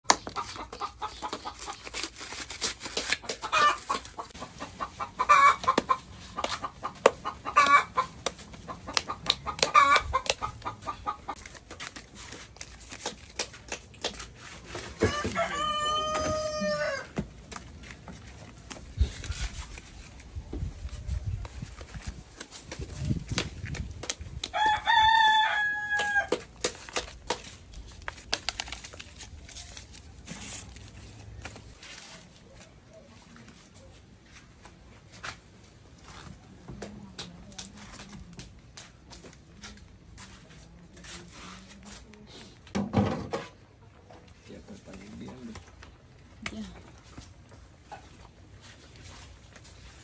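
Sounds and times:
chickens clucking: 0:00.1 - 0:02.1, 0:03.2 - 0:11.4
corn husks crackling and tearing: 0:00.1 - 0:33.8
rooster crowing: 0:15.0 - 0:17.2, 0:24.5 - 0:26.4.

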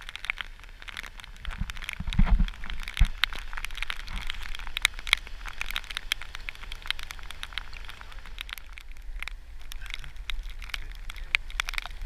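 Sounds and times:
rain drops ticking on microphone: 0:00.0 - 0:12.0.

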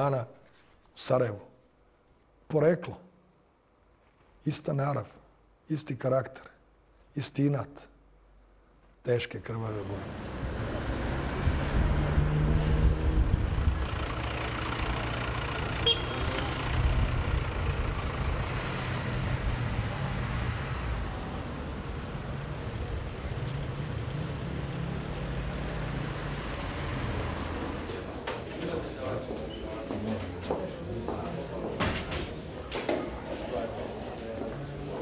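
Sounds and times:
traffic rumble: 0:08.1 - 0:35.0.

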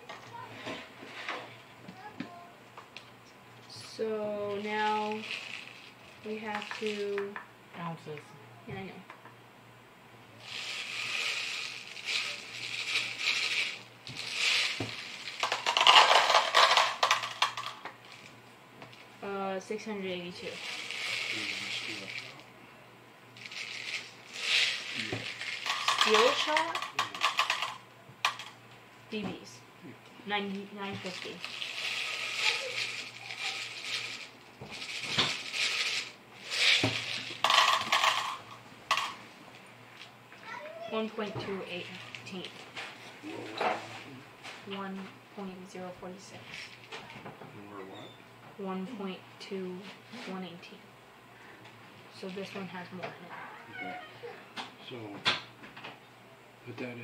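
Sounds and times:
metal pellets rattling into plastic cup: 0:05.0 - 0:05.9, 0:06.5 - 0:07.1, 0:10.4 - 0:18.3, 0:20.5 - 0:22.4, 0:23.4 - 0:28.5, 0:31.0 - 0:39.2.

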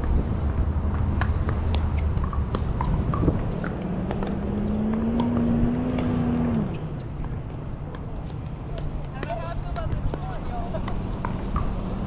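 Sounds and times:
ball bouncing on hard court: 0:00.0 - 0:12.0
paddles hitting plastic ball: 0:00.9 - 0:06.2.

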